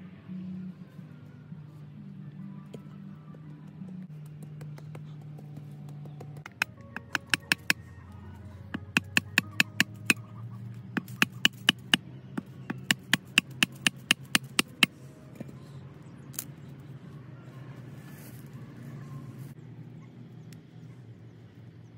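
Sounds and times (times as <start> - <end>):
machete chopping woody stem: 6.4 - 7.8, 8.8 - 10.2, 11.0 - 12.0, 12.7 - 14.9.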